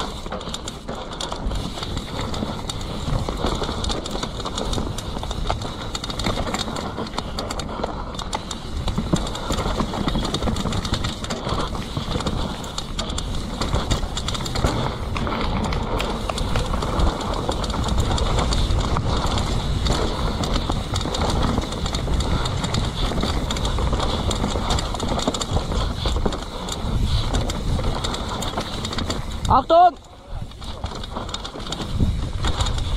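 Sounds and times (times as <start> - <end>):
bike clattering over roots: 0.0 - 32.9
bike tyres rolling over dirt: 0.0 - 32.9.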